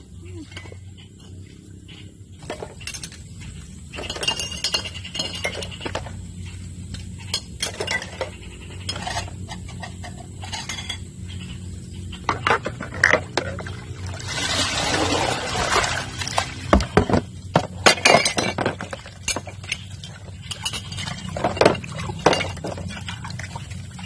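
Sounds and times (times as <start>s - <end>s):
glasses and dishes clinking: 2.4s - 6.1s, 7.2s - 11.3s, 16.9s - 23.0s.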